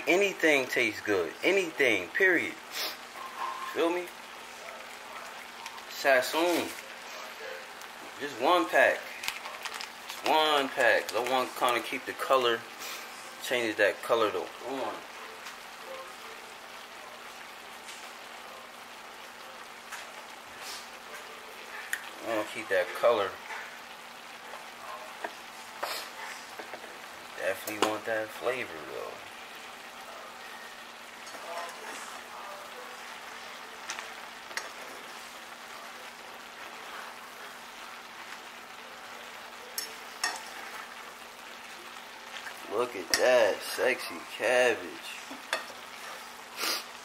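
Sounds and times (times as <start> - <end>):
cabbage sizzling in a pan: 0.0 - 47.0
utensils clicking against pan: 39.7 - 40.7.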